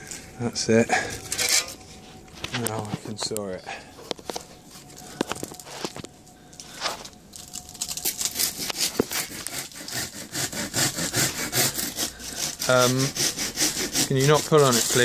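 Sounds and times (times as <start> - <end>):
hand saw cutting wood: 8.0 - 15.0.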